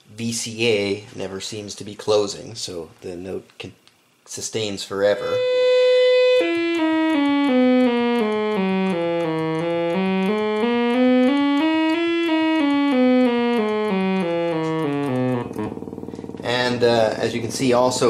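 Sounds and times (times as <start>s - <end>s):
sustained synthesizer notes: 5.2s - 18.0s.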